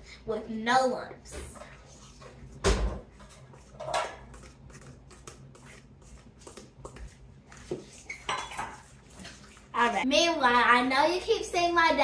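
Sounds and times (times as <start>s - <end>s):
fork beating batter in metal bowl: 1.6s - 9.7s.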